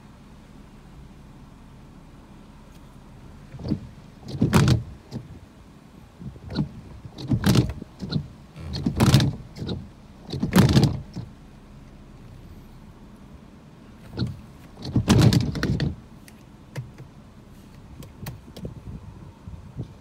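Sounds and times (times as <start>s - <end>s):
low steady hiss: 0.0s - 20.0s
wind gusts buffeting microphone: 17.9s - 20.0s.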